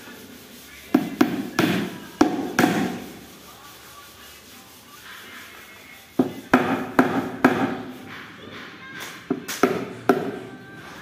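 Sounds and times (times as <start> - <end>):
hammer tapping on board panel: 0.9 - 3.0, 6.2 - 7.8.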